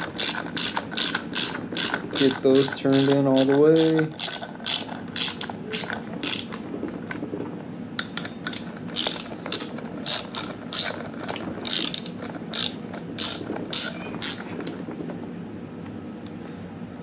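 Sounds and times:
ratchet wrench clicking: 0.0s - 6.5s, 8.4s - 14.5s.

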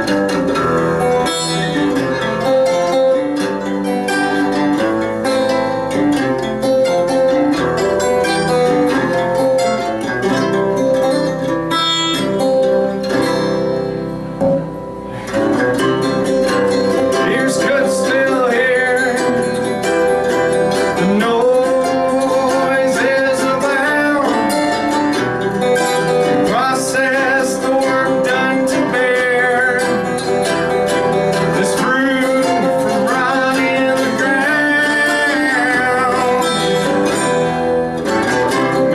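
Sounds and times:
acoustic guitars playing: 0.0s - 38.9s
man singing: 16.2s - 25.2s, 26.1s - 38.9s.

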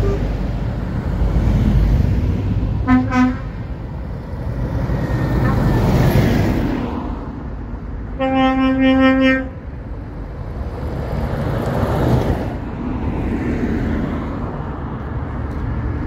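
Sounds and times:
truck horn blast: 0.0s - 0.3s, 2.8s - 3.6s, 5.4s - 5.8s, 8.2s - 9.6s
truck diesel engine passing: 0.0s - 16.0s.

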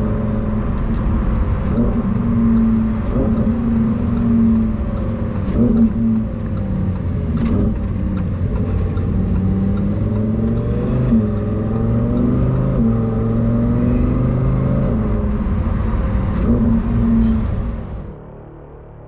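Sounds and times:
car engine running: 0.0s - 19.0s
road and tyre noise: 0.0s - 19.0s.

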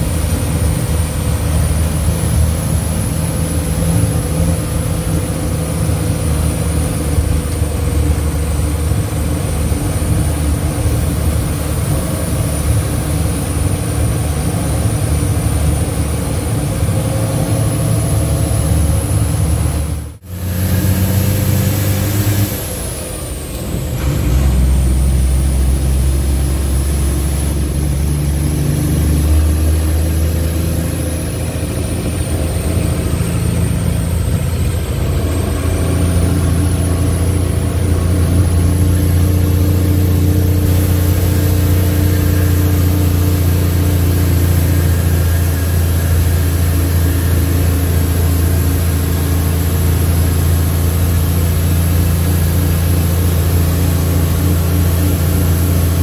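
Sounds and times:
truck diesel engine pulling: 0.0s - 56.0s.

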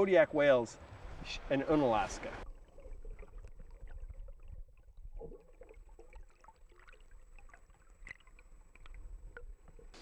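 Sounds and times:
faint trickling water: 2.4s - 10.0s.

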